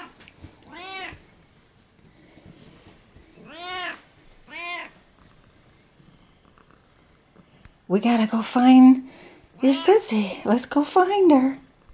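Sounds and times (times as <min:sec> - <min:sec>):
cat meowing: 0:00.7 - 0:01.2, 0:03.4 - 0:05.0.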